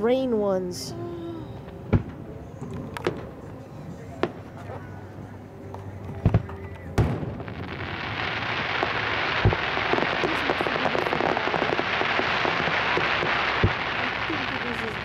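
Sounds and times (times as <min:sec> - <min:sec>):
firework booms: 0:06.2 - 0:15.0
firework crackle: 0:06.2 - 0:15.0.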